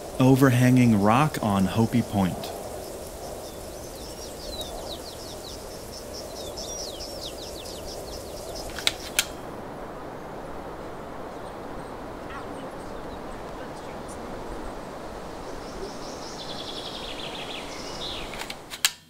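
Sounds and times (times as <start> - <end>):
steady background hiss: 0.0 - 19.0
small bird chirping: 1.8 - 9.3, 15.3 - 18.4
sharp clicks: 8.7 - 9.4.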